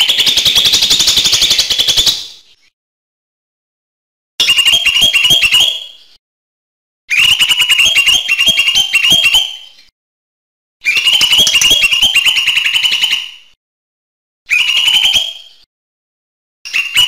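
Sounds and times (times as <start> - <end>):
bird singing chattering notes: 11.2 - 12.0.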